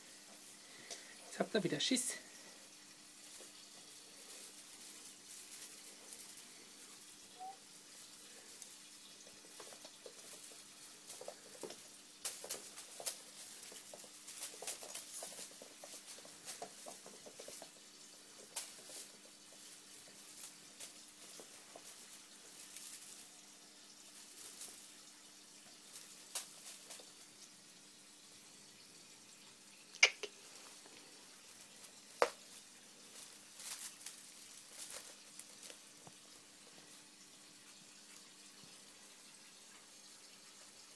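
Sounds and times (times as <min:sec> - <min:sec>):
faint steady hum: 0:00.0 - 0:40.9
kitten paws pattering on wood: 0:07.9 - 0:23.4, 0:30.5 - 0:37.1.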